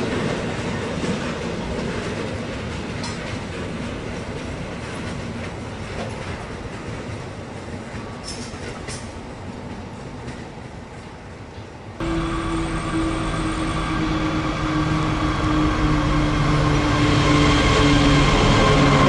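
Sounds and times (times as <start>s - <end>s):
diesel locomotives droning: 12.0s - 19.0s.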